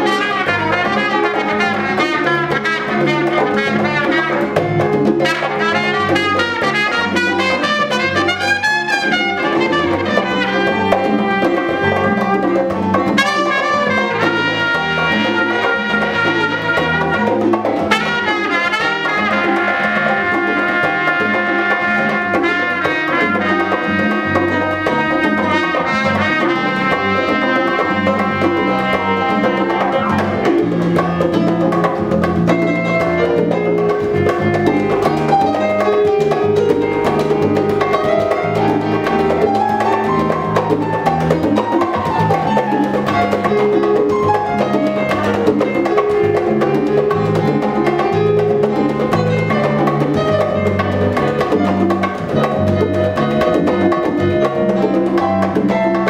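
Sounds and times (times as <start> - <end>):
salsa rhythm section: 0.0 - 56.0
trumpet melody: 0.0 - 56.0.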